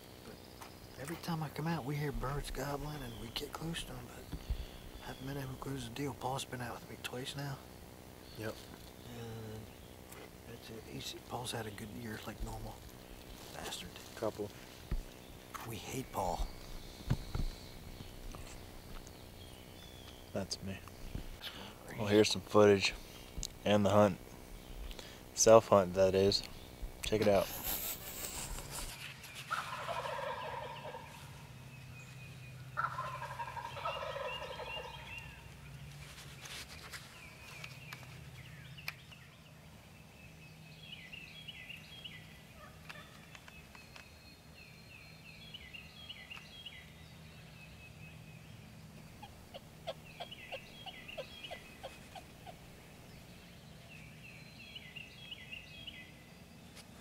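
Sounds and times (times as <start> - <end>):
songbirds singing: 0.0 - 57.0
turkey gobbling: 29.5 - 31.2, 32.8 - 35.4, 49.1 - 52.7.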